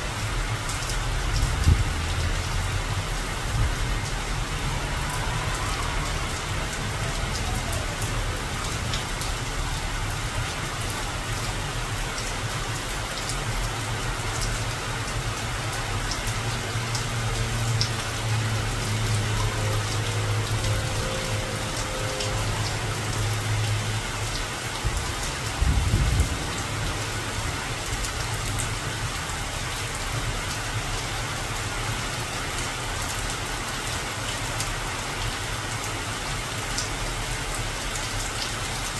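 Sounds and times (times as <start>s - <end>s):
rain falling on leaves: 0.0s - 38.9s.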